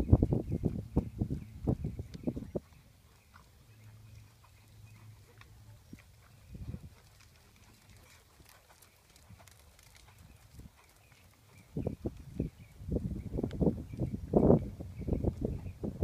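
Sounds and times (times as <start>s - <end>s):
hoofbeats on sand: 0.0s - 12.8s.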